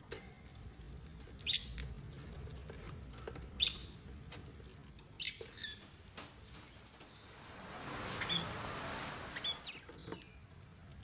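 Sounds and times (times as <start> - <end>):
parrot chirping: 8.0 - 9.9.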